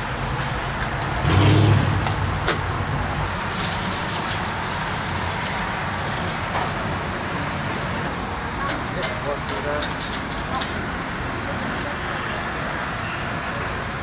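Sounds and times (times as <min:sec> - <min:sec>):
dough deep-frying in hot oil: 0:00.0 - 0:11.0.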